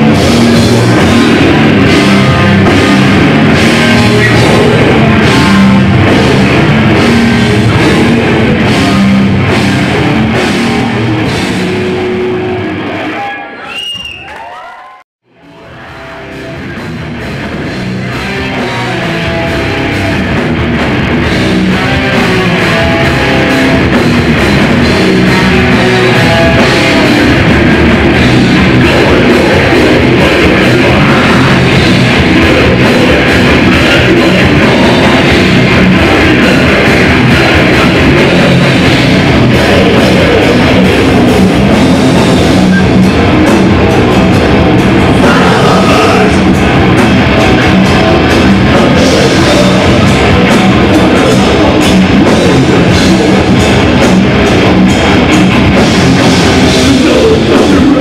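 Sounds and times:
live metal band playing: 0:00.0 - 0:13.6, 0:15.3 - 0:58.0.

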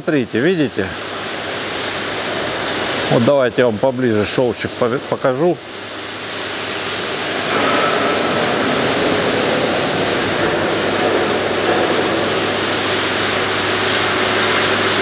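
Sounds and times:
workshop machinery rushing: 0:01.6 - 0:15.0.

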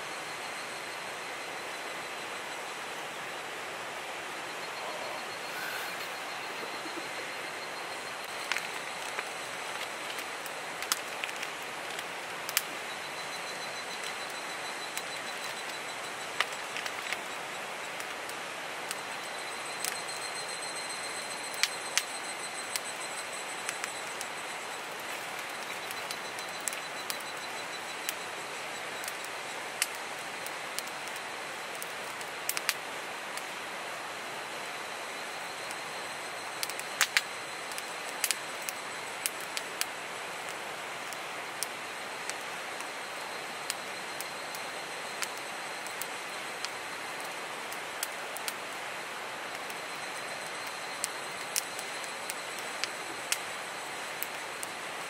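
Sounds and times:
campfire pops and crackles: 0:04.7 - 0:33.6, 0:34.2 - 0:55.0.

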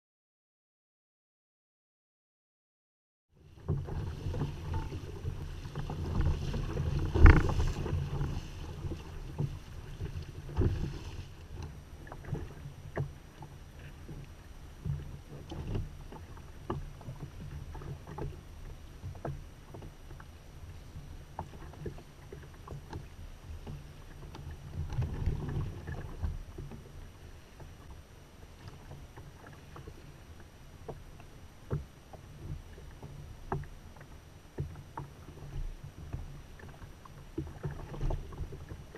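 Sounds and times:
water splashing against kayak hull: 0:03.4 - 0:38.9
wind on microphone: 0:03.6 - 0:13.1.

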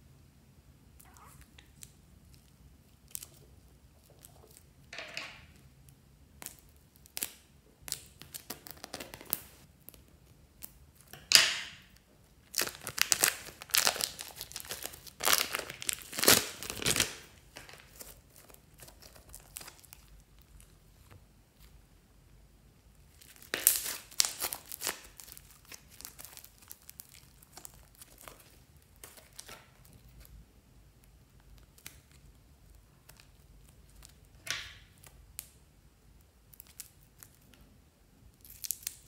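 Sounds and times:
plastic bags crinkling: 0:12.4 - 0:20.2, 0:23.2 - 0:29.9.

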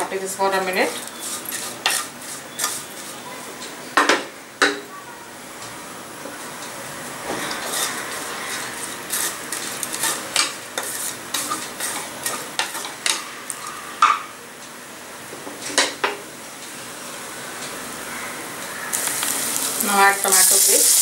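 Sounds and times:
soft sizzle of frying: 0:00.0 - 0:21.0
spatula scraping metal pan: 0:01.1 - 0:02.9, 0:07.4 - 0:12.9.

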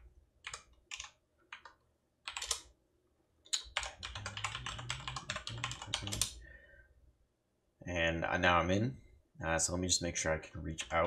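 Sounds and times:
computer keyboard keystrokes: 0:00.4 - 0:02.7, 0:03.5 - 0:06.4.

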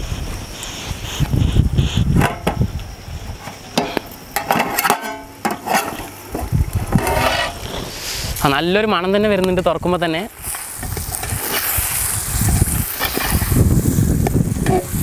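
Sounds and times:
wind rumble on microphone: 0:00.0 - 0:03.5, 0:06.3 - 0:15.0
metal lid clattering: 0:03.8 - 0:07.6
metal ladle scraping pot: 0:03.8 - 0:08.0, 0:14.6 - 0:15.0.

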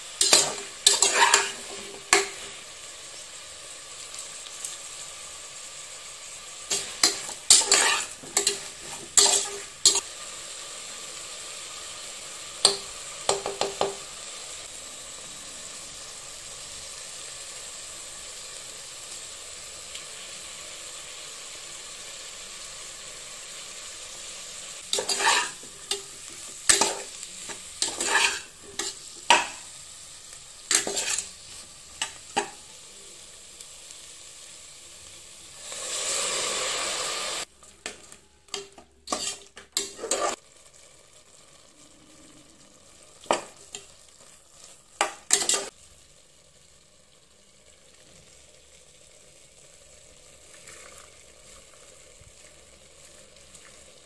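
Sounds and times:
vegetables sizzling: 0:00.0 - 0:54.0
spoon scraping metal pot: 0:00.2 - 0:02.4, 0:06.7 - 0:10.0, 0:24.9 - 0:29.6, 0:30.7 - 0:31.3, 0:38.5 - 0:40.4, 0:45.3 - 0:45.7.

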